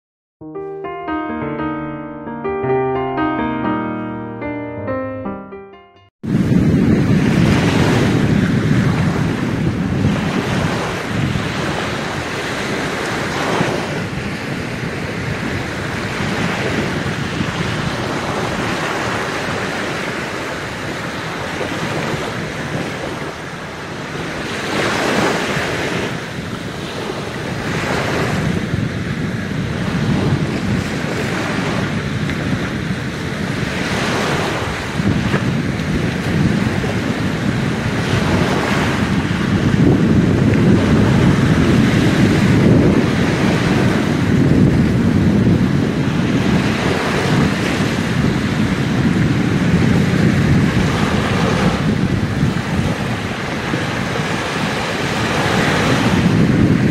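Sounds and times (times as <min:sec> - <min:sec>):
wind on microphone: 0:06.2 - 0:56.9
small waves washing on shore: 0:06.3 - 0:56.9.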